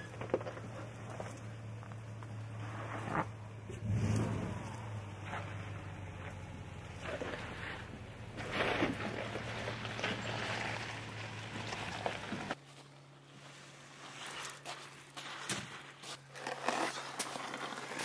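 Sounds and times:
pickup truck engine running: 0.0 - 12.6.

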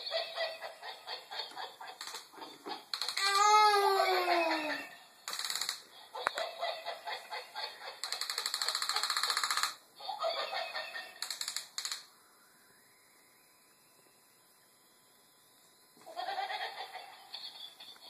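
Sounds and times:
toy monkey chattering through speaker: 0.0 - 3.3, 5.3 - 12.1.

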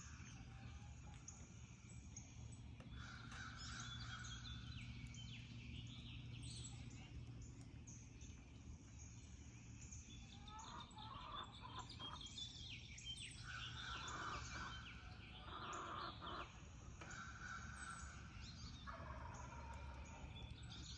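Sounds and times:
low background hum: 0.0 - 20.9
songbirds chirping: 0.0 - 20.9
distant turkeys gobbling: 13.5 - 14.8, 18.9 - 20.2.

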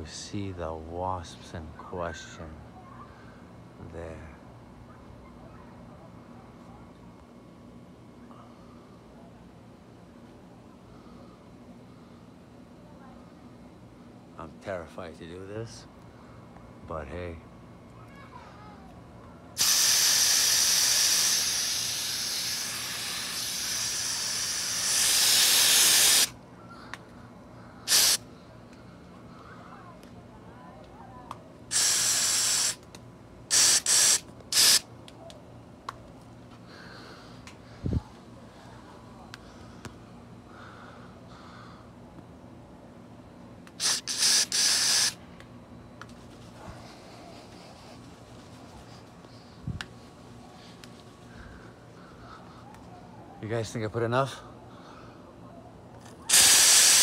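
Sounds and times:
aerosol can spraying hiss: 19.6 - 26.3, 27.9 - 28.2, 31.7 - 32.8, 33.5 - 34.8, 43.8 - 45.2, 56.3 - 57.0.

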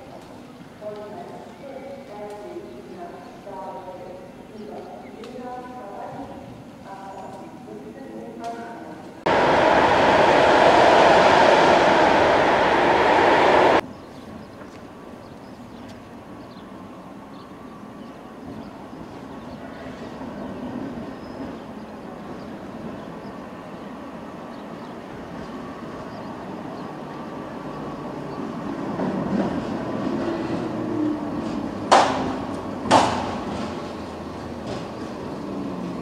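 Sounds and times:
tram running on street track: 9.0 - 36.0
sharp knock: 31.9 - 33.4.

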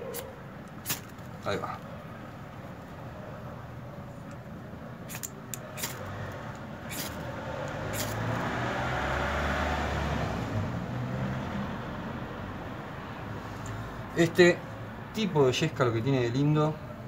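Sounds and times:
scraper rasping on ferro rod: 6.9 - 7.3, 7.9 - 8.3.

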